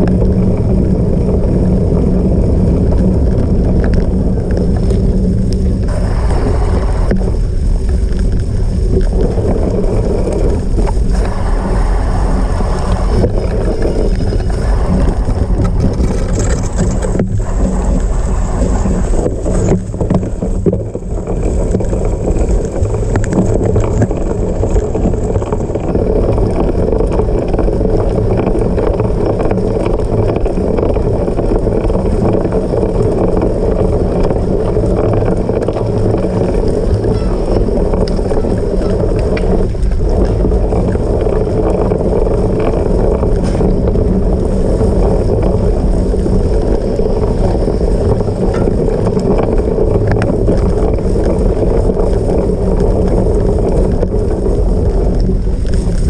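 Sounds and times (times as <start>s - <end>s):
bike rumbling over rough ground: 0.0s - 56.0s
wind rushing over microphone: 0.0s - 56.0s.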